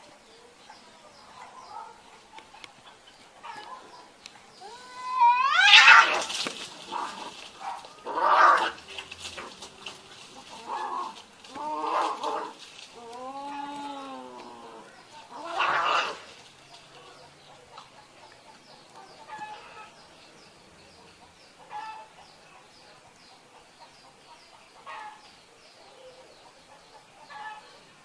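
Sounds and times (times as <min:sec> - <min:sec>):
cats yowling: 0:04.6 - 0:06.3, 0:08.0 - 0:08.8, 0:13.1 - 0:16.2.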